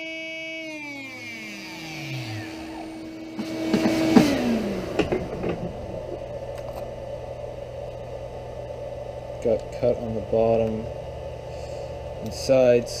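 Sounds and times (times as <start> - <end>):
router spindle whining: 0.0 - 7.1
low steady hum: 0.0 - 13.0
knocks and rattles: 3.4 - 6.3.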